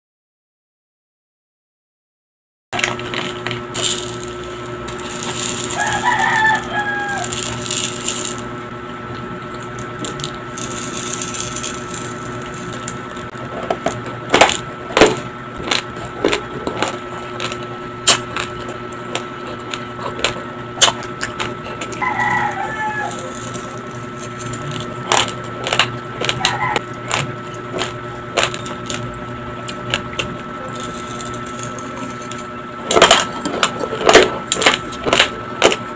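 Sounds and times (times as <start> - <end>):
rice crunched between teeth: 2.8 - 8.6, 9.5 - 35.9
steady low hum: 2.8 - 35.9
rooster crowing: 5.0 - 8.4, 21.6 - 23.9, 26.2 - 26.9.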